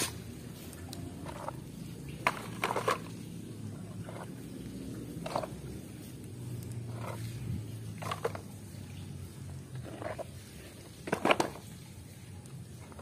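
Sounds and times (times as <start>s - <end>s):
plastic toys knocking: 2.2s - 3.2s, 11.0s - 11.6s.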